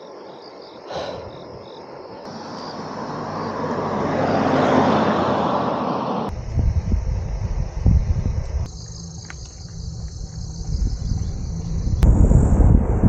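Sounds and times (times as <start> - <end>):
faint insect chirping: 0.0 - 4.7, 6.3 - 12.0
passing motor vehicle rushing: 2.3 - 6.3.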